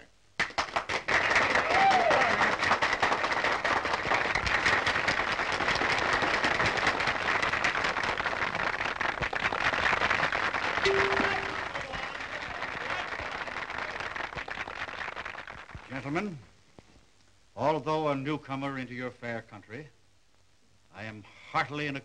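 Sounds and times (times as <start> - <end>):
crowd applauding: 0.4 - 15.8.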